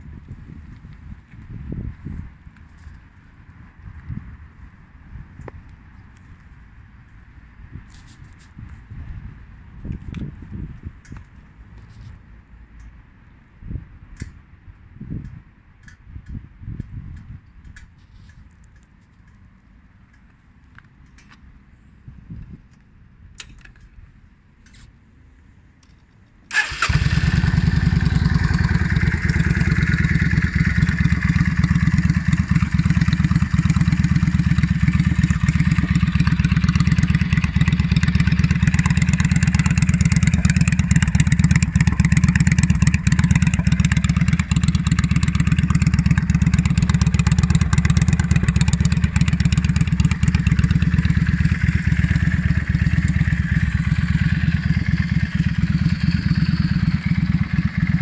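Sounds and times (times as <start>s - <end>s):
motorcycle engine starting and idling: 26.5s - 58.0s.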